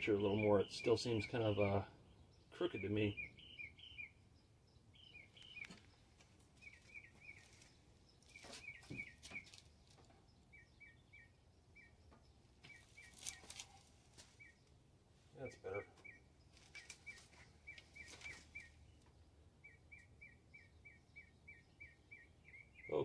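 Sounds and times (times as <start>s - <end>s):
small bird chirping: 0.0s - 23.0s
rustles and knocks of movement: 5.3s - 10.4s, 12.0s - 19.3s.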